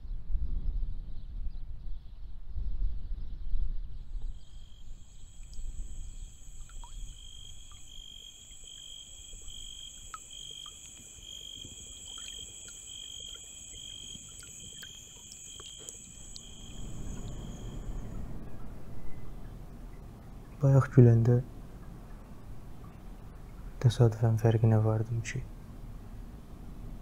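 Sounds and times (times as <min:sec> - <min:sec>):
low rumble: 0:00.0 - 0:08.6, 0:16.0 - 0:24.2
insects chirping: 0:04.2 - 0:24.6.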